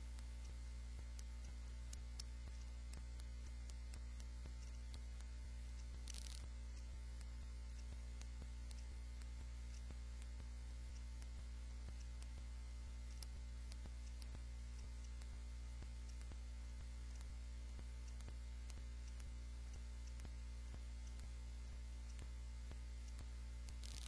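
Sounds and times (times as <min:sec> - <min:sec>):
faint mains hum: 0:00.0 - 0:24.0
small regular ticks: 0:00.0 - 0:24.0.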